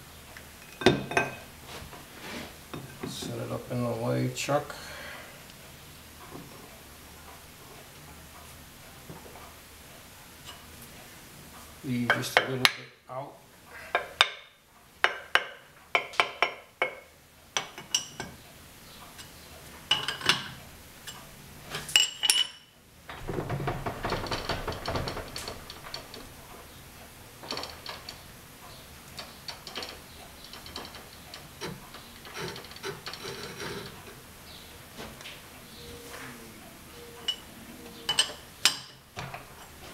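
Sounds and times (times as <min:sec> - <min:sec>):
lathe rattling: 0:23.1 - 0:28.3.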